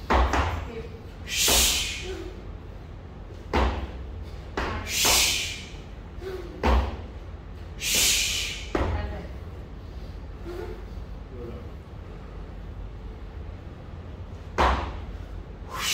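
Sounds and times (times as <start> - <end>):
sharp hissing exhale: 1.3 - 2.2, 4.8 - 5.8, 7.8 - 8.7, 15.7 - 15.9
kettlebell landing thud: 14.6 - 15.0.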